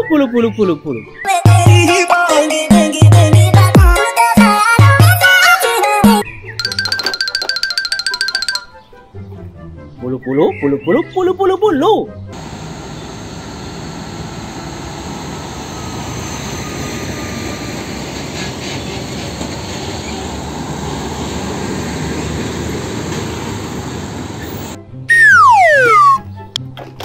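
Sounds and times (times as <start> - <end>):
trucks and motorbikes passing: 12.3 - 24.8
falling whistle sound effect: 25.1 - 26.3.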